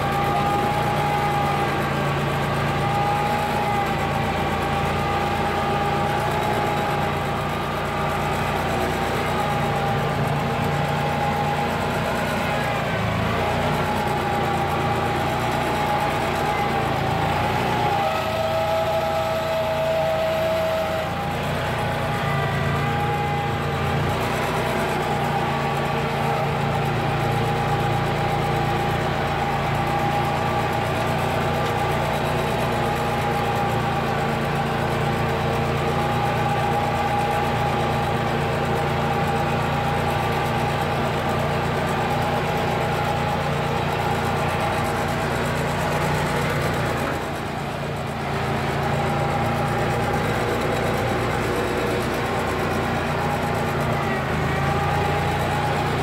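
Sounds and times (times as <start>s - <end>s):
garden tractor engine running: 0.0s - 56.0s
thin whine: 0.0s - 56.0s.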